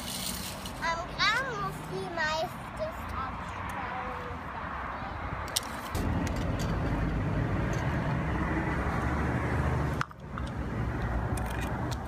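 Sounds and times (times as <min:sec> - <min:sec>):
vehicle engine droning: 0:06.0 - 0:12.0.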